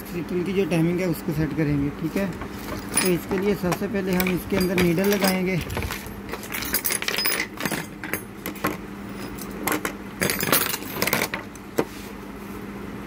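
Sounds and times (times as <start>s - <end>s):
small metal tools clinking: 2.2s - 11.4s.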